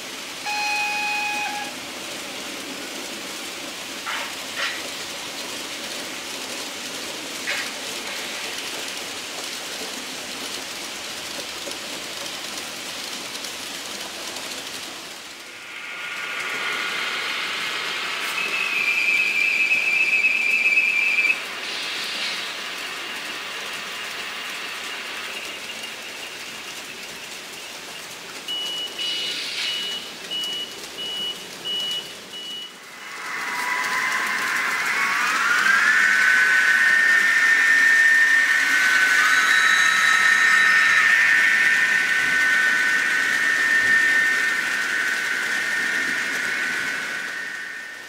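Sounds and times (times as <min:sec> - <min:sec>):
loud high whine: 0:00.0 - 0:02.8, 0:14.9 - 0:27.6, 0:32.7 - 0:48.0
model trains running on track: 0:00.0 - 0:48.0
short beeps: 0:00.5 - 0:01.7.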